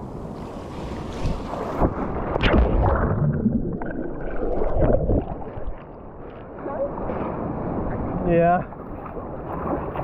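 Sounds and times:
underwater bubbling and gurgling: 0:01.2 - 0:10.0
splash into water: 0:01.8 - 0:05.8.

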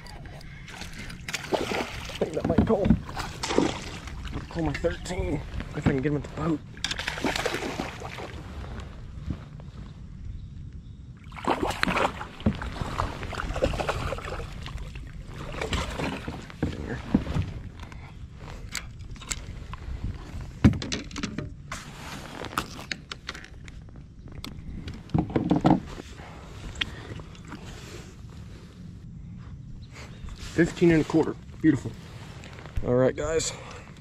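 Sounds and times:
fish splashing and thrashing: 0:00.0 - 0:05.1, 0:06.8 - 0:08.4, 0:11.3 - 0:16.8
water sloshing: 0:00.0 - 0:05.8, 0:06.7 - 0:08.8, 0:11.3 - 0:17.7
knocks and clicks against boat: 0:02.1 - 0:04.9, 0:15.5 - 0:18.0, 0:20.6 - 0:21.6, 0:22.9 - 0:26.0.

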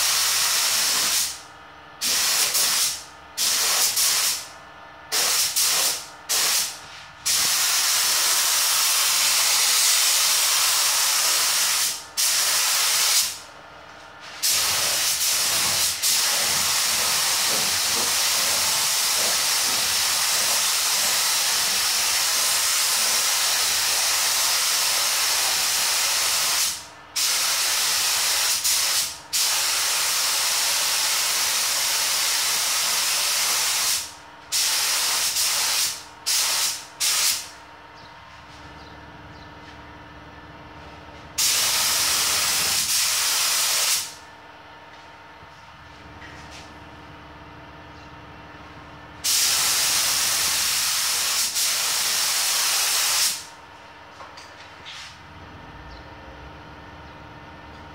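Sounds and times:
spray gun hissing: 0:02.0 - 0:04.4, 0:05.1 - 0:13.4, 0:14.4 - 0:37.4, 0:41.4 - 0:44.2, 0:49.2 - 0:53.5.

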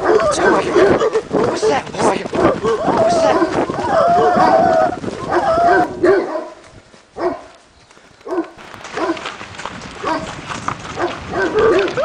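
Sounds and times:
dog barking and yelping: 0:00.0 - 0:01.8, 0:02.4 - 0:06.6, 0:07.2 - 0:07.5, 0:11.0 - 0:12.0.

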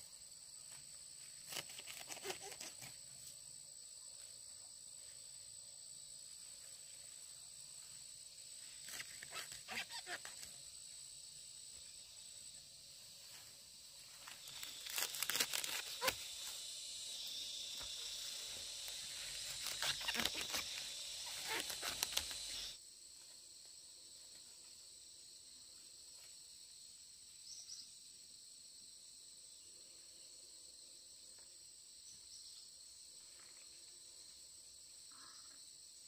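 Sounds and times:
high-pitched insect drone: 0:13.2 - 0:22.8
rustling and crumpling handling noise: 0:14.1 - 0:16.4.

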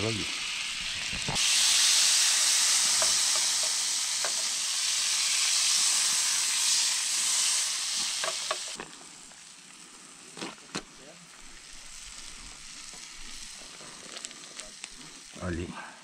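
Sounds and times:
meat frying sizzle: 0:00.0 - 0:15.7.

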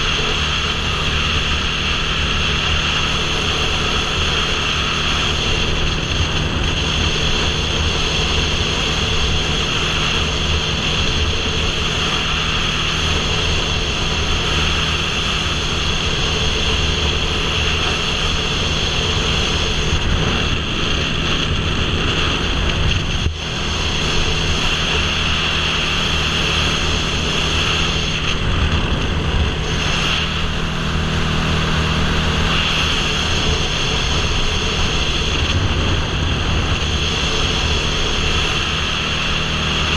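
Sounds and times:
motorcycle engine hum: 0:00.0 - 0:39.9
wind rushing over microphone: 0:00.0 - 0:39.9.

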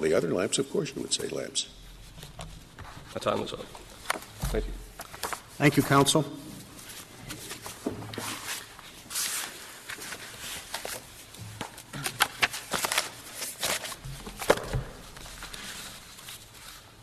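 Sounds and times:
footsteps: 0:01.3 - 0:12.1
papers rustling: 0:01.3 - 0:17.0.

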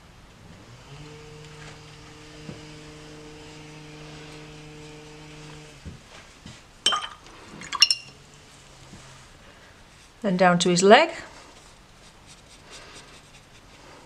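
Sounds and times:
hedge trimmer motor humming: 0:00.4 - 0:05.9
sharp clinks: 0:07.8 - 0:08.2.

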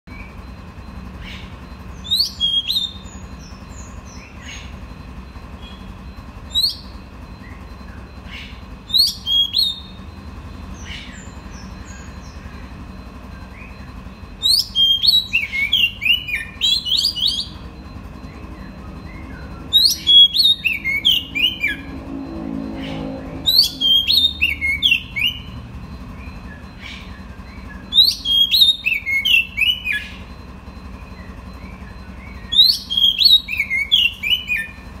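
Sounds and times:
bird singing whistled notes: 0:01.2 - 0:35.0.

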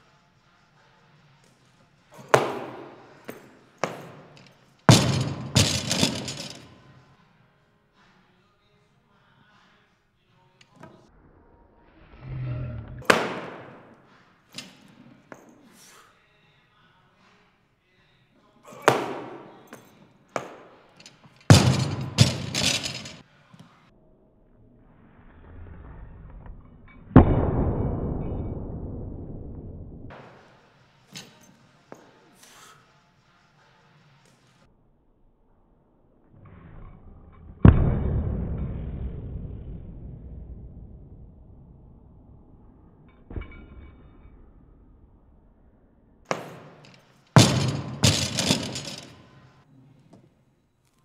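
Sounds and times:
heavy weights thudding on floor: 0:02.2 - 0:04.3, 0:04.9 - 0:06.7, 0:21.5 - 0:23.2, 0:46.3 - 0:49.2
barbell crashing on wooden platform: 0:02.2 - 0:06.7, 0:13.1 - 0:13.8, 0:21.5 - 0:23.2, 0:46.3 - 0:49.2
barbell clattering: 0:03.8 - 0:06.7, 0:21.0 - 0:23.2, 0:46.3 - 0:49.3
plates rattling: 0:47.4 - 0:49.2.

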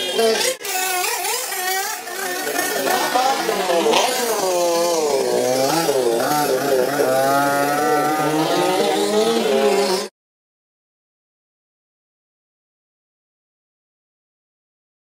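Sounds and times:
dirt bike engine revving: 0:00.0 - 0:10.1.

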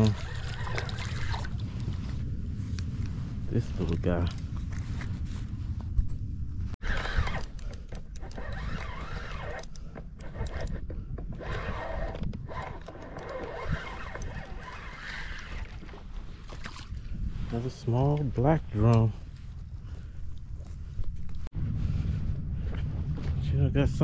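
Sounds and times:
fishing rod clicks and rustles: 0:00.0 - 0:03.1, 0:03.9 - 0:06.2, 0:06.8 - 0:17.1
low rumble: 0:18.6 - 0:24.0.

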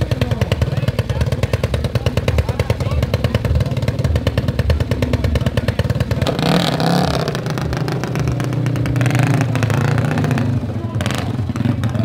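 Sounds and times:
motorcycle engine popping: 0:00.0 - 0:12.0.

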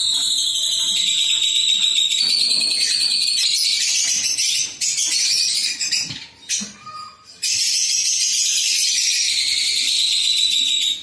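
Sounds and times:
lovebirds chirping: 0:00.0 - 0:11.0.

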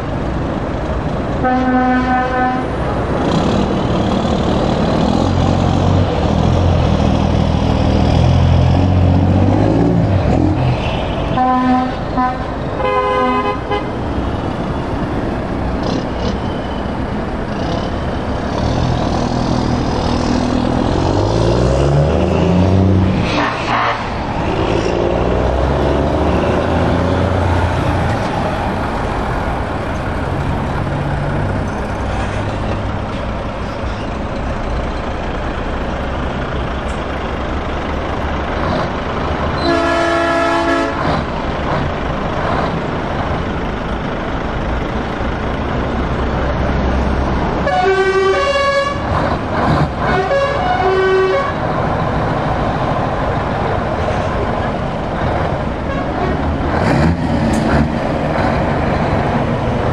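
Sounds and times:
heavy diesel trucks driving past: 0:00.0 - 0:59.9
truck horn: 0:01.4 - 0:02.9, 0:11.3 - 0:14.1, 0:22.5 - 0:24.6, 0:39.6 - 0:41.3, 0:47.6 - 0:49.2, 0:50.0 - 0:51.6, 0:55.8 - 0:56.4.

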